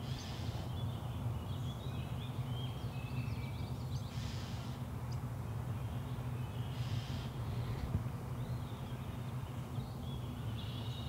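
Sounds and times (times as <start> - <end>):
soft rushes of hiss: 0.0 - 0.7, 4.1 - 4.8, 6.7 - 8.0
small birds chirping: 0.0 - 11.0.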